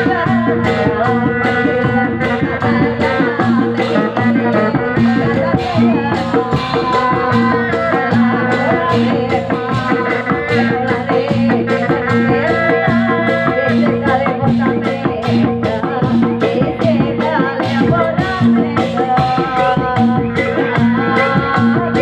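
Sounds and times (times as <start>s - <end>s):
hand drums beating: 0.0s - 22.0s
rattling percussion: 0.0s - 22.0s
sustained melody line: 0.0s - 22.0s.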